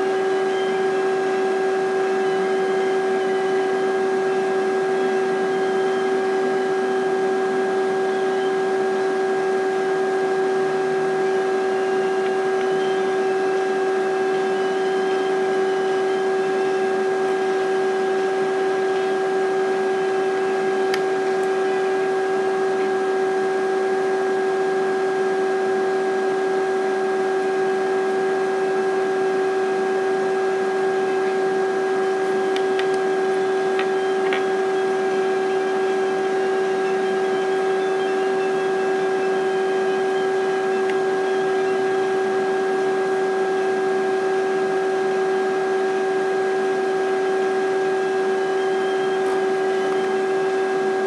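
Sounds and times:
constant mid-pitched tone: 0:00.0 - 0:25.0, 0:26.5 - 0:51.0
electrical hum: 0:00.0 - 0:51.0.

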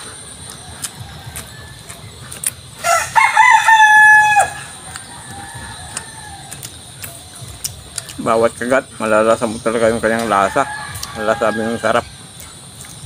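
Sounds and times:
rooster crowing: 0:00.6 - 0:02.2, 0:02.8 - 0:07.4, 0:10.1 - 0:12.3.

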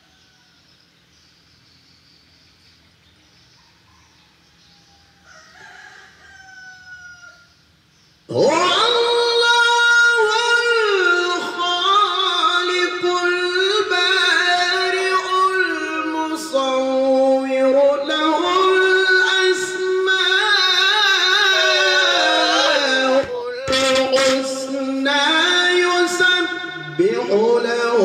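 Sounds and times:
man reciting in melodic chant: 0:08.3 - 0:28.0.

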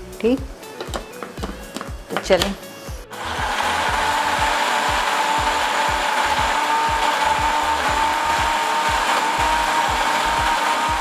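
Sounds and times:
blender motor whining: 0:03.1 - 0:11.0.

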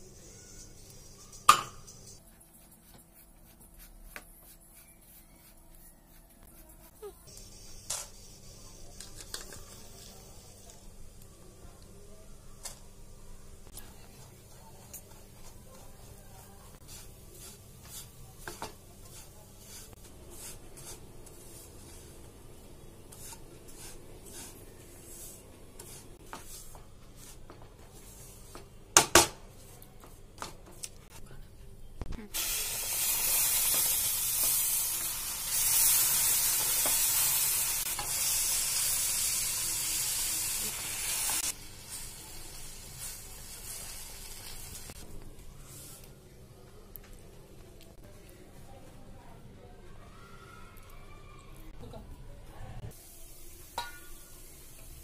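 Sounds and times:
spatula scraping pan: 0:16.8 - 0:22.2, 0:23.1 - 0:28.6.

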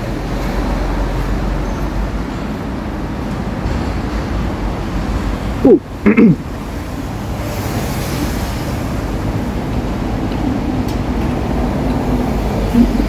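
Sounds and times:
road traffic passing: 0:00.0 - 0:13.0
short falling voice sounds: 0:05.6 - 0:06.4.

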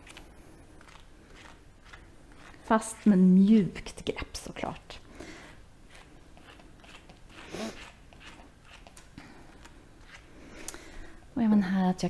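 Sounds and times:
brush scratching through fur: 0:00.8 - 0:05.0, 0:05.8 - 0:10.4.

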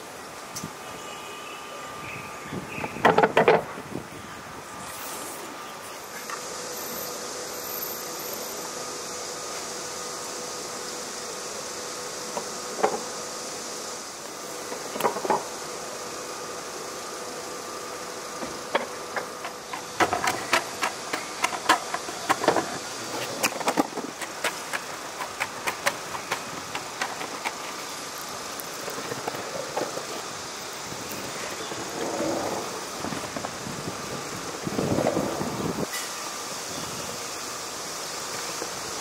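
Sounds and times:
skateboard wheels rolling on stone: 0:02.9 - 0:03.8, 0:12.2 - 0:13.2, 0:14.4 - 0:15.7, 0:18.4 - 0:35.9
steady hum: 0:04.0 - 0:39.0
sharp clicks and clacks: 0:18.8 - 0:27.8.

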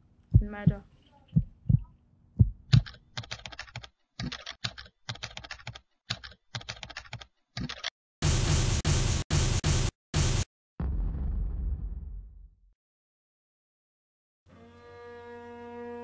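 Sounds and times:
computer keyboard typing: 0:02.7 - 0:07.9.

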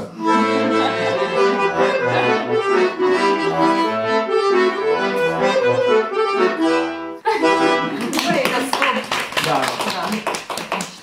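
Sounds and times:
accordion playing a tune: 0:00.0 - 0:08.5.

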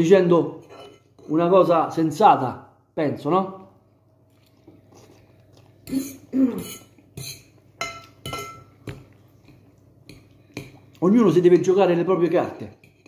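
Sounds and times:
fork scraping ceramic bowl: 0:00.6 - 0:01.4, 0:05.8 - 0:08.6.

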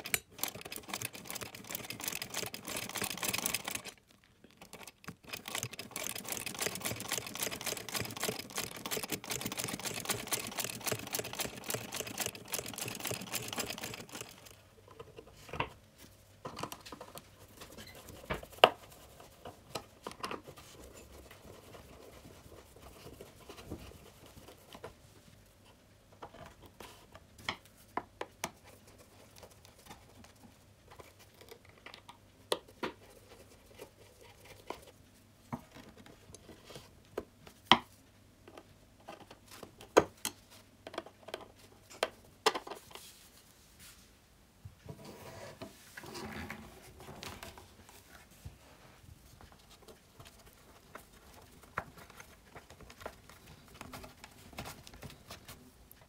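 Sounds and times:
sewing machine stitching: 0:00.0 - 0:14.6.

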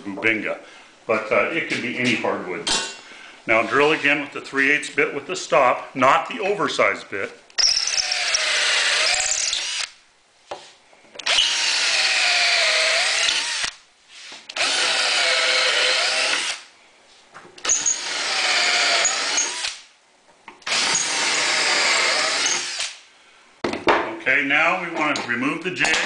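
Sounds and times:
cordless drill boring into wood: 0:07.6 - 0:10.0, 0:11.2 - 0:13.8, 0:14.5 - 0:16.7, 0:17.6 - 0:19.8, 0:20.6 - 0:23.0.

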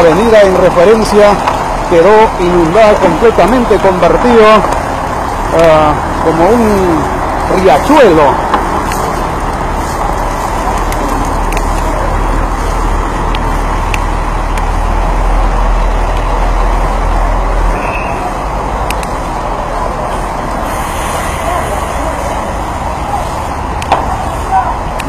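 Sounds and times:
deep engine rumble: 0:00.0 - 0:25.0
traffic engine and road noise: 0:00.0 - 0:25.0.

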